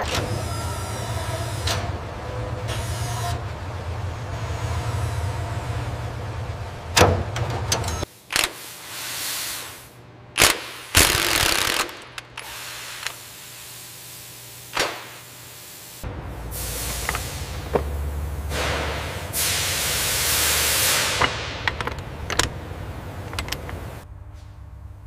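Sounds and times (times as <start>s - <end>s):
low machinery hum: 0.0s - 8.5s, 9.9s - 25.0s
handheld fastening tool burst: 8.3s - 8.6s, 10.4s - 13.2s.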